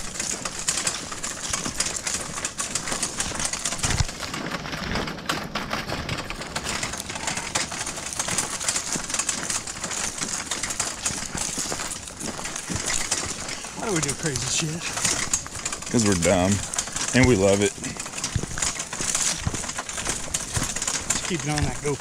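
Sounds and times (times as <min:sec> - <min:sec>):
cart rattling: 0:00.0 - 0:22.0
footsteps crunching on gravel: 0:00.0 - 0:22.0.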